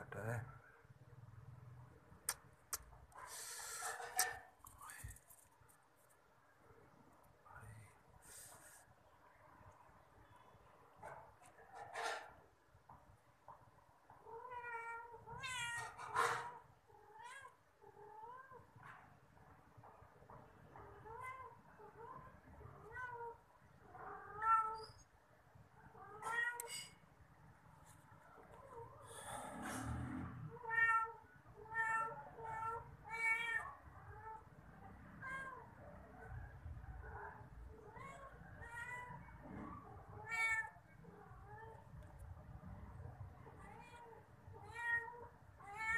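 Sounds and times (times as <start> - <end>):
cats meowing: 14.2 - 18.8, 20.7 - 25.1, 25.8 - 26.9, 30.5 - 36.4, 37.0 - 42.1, 43.4 - 45.9.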